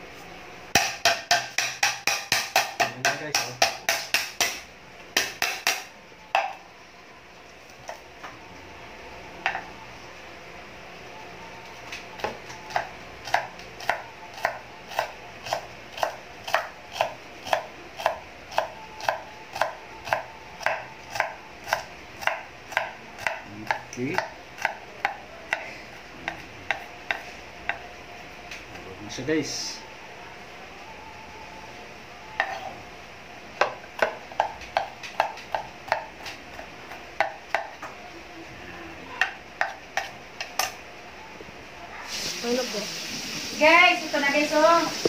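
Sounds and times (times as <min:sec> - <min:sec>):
knife chopping on wooden board: 0:12.2 - 0:25.7, 0:33.6 - 0:37.8.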